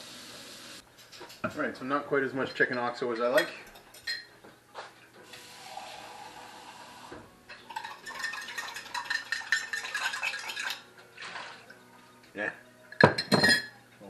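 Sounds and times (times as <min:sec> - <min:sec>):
spoon clinking in cup: 0:07.6 - 0:10.8, 0:12.9 - 0:13.8.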